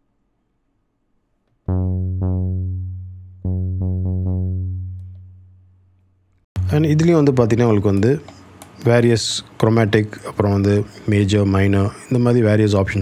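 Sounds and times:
synth bass notes: 1.6 - 7.9.

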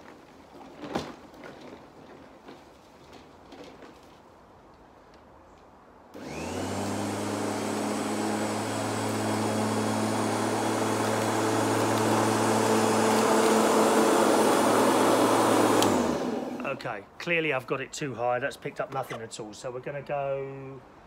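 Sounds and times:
electric lawnmower running: 6.2 - 16.8.

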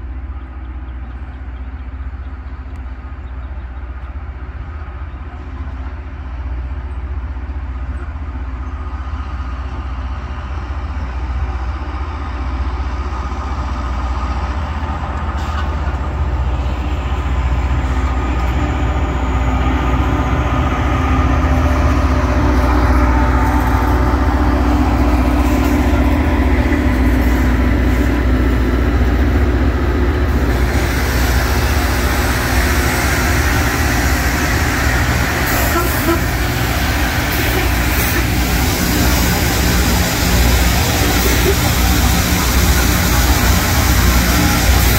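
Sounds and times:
diesel train engine drone: 0.0 - 44.9
harsh hiss of rail grinding: 30.1 - 44.9.

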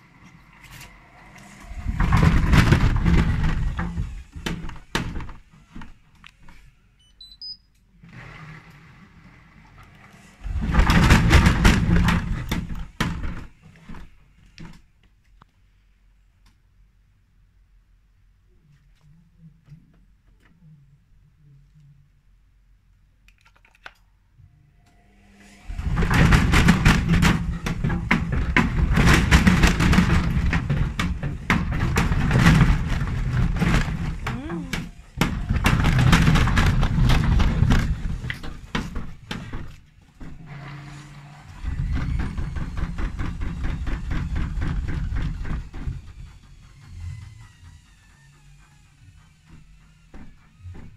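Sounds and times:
washing machine rushing noise: 0.0 - 6.1, 8.0 - 14.2, 25.2 - 50.9
washing machine drum knocking: 25.8 - 40.4.

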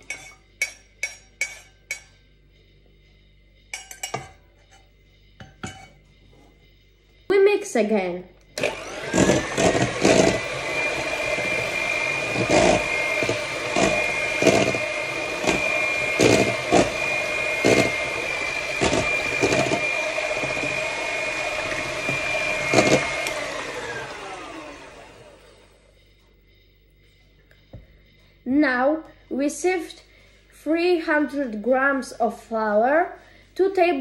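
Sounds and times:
electric hand mixer whining: 8.6 - 25.8.

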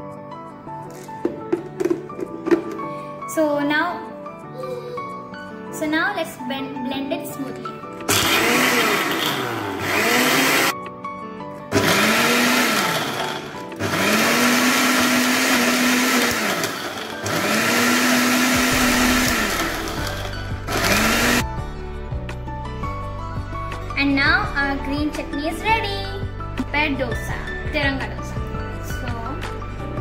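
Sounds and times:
mixer grinder motor whine: 8.1 - 10.8, 11.7 - 21.4.

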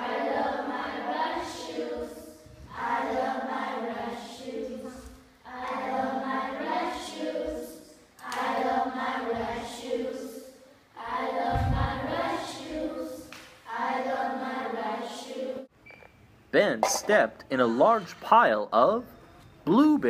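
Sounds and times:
children singing in unison: 0.0 - 15.7
low thud: 11.5 - 12.2.

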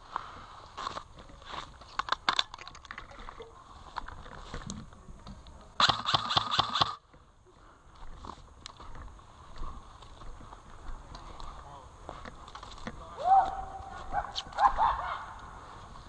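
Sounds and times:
footsteps crunching through dry grass: 0.0 - 2.1, 7.5 - 16.0
airsoft rifle burst: 5.8 - 7.0.

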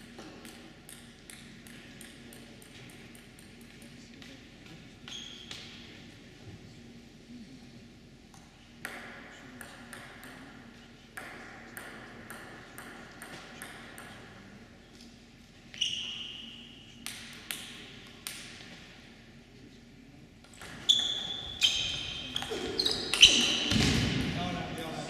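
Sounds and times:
table tennis ball bouncing: 0.0 - 3.8, 8.3 - 10.6, 11.2 - 14.3, 17.0 - 18.8.

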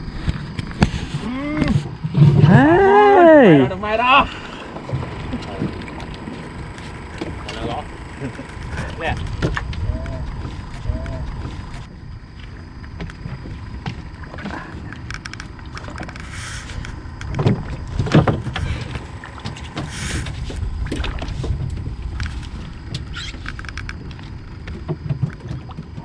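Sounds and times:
wind and water against hull: 0.0 - 26.0
water splashing: 3.4 - 11.7, 12.5 - 25.8
boat clicks: 4.4 - 11.9, 12.8 - 26.0.

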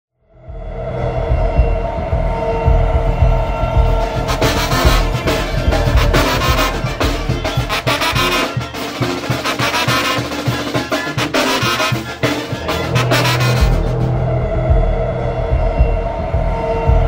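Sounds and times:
brass band music: 4.0 - 14.3.

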